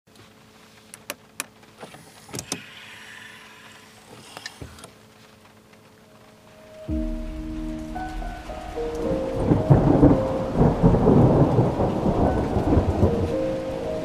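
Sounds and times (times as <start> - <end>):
sharp clicks and clunks: 0.9 - 2.7.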